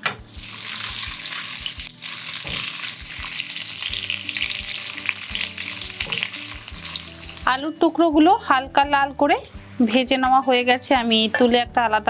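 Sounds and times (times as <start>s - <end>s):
potatoes sizzling in oil: 0.3s - 8.1s.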